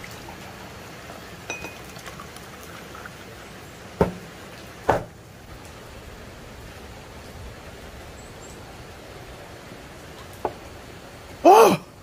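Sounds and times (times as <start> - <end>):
steady rain falling: 0.0 - 12.0
sharp knocks: 4.0 - 4.2, 4.9 - 5.1.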